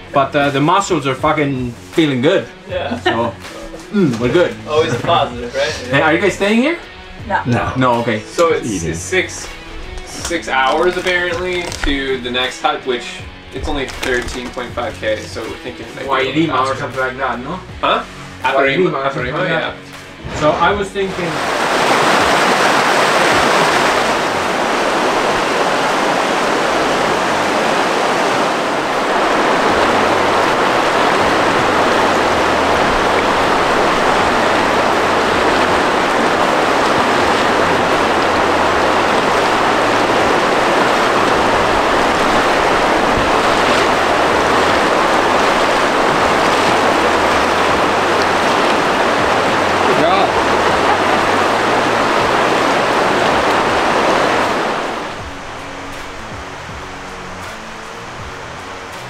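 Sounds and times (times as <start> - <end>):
river rushing over rocks: 20.3 - 59.0.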